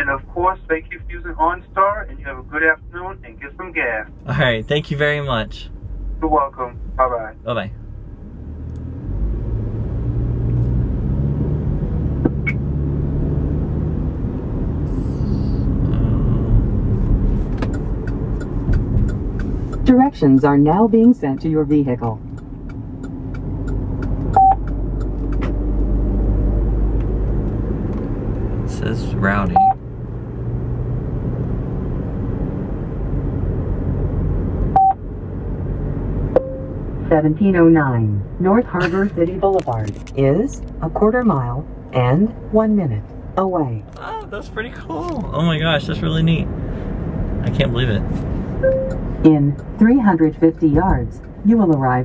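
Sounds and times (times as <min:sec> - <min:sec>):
car engine and road noise: 0:00.0 - 0:52.0
short electronic beep: 0:24.4 - 0:24.6, 0:29.5 - 0:29.8, 0:34.8 - 0:35.0, 0:36.4 - 0:36.8.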